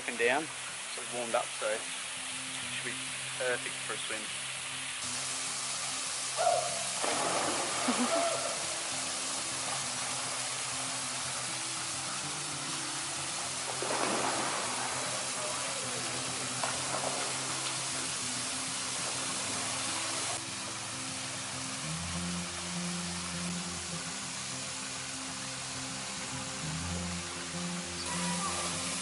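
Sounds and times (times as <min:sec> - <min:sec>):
small waterfall splashing: 0:00.0 - 0:29.0
voices: 0:14.7 - 0:16.8, 0:28.0 - 0:29.0.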